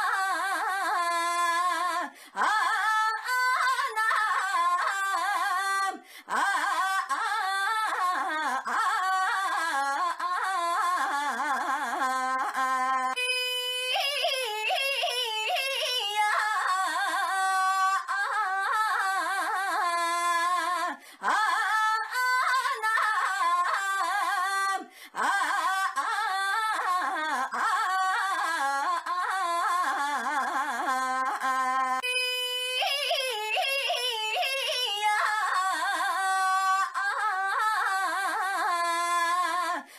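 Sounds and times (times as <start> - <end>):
woman calling in sing-song voice: 0.0 - 39.9.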